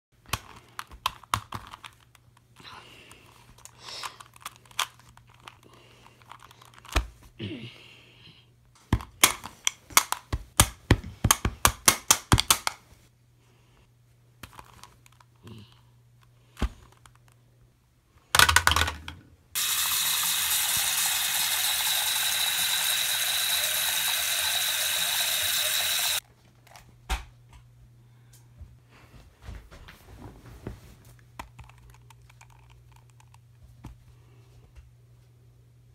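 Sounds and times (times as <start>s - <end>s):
plastic cube clicks: 9.0s - 12.8s.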